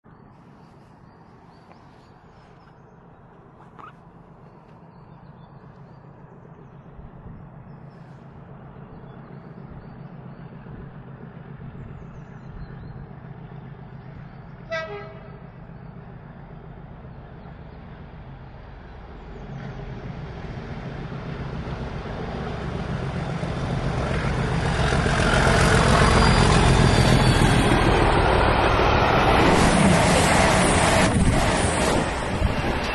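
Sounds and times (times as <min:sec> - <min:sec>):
diesel locomotive engine rumble: 0:00.1 - 0:32.9
train horn: 0:14.6 - 0:15.4.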